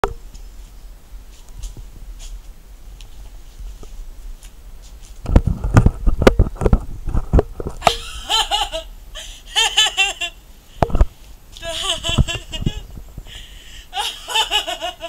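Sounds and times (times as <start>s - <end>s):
person laughing high-pitched: 7.8s - 10.4s, 11.6s - 12.9s, 13.9s - 15.0s
low thumps: 10.8s - 11.1s.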